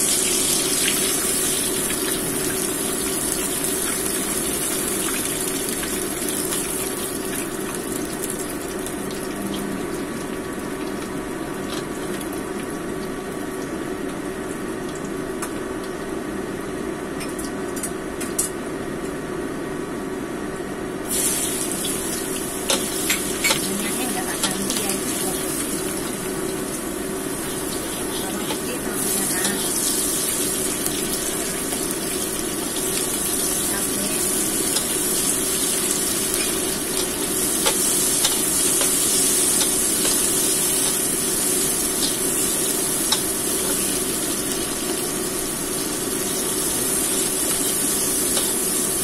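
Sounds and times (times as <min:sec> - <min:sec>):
oil sizzling in a wok: 0:00.0 - 0:15.2, 0:21.0 - 0:49.0.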